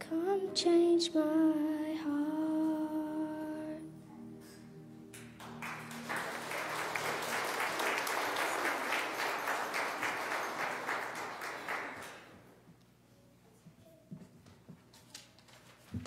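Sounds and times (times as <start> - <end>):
song held notes: 0.0 - 10.5
congregation clapping: 5.1 - 12.5.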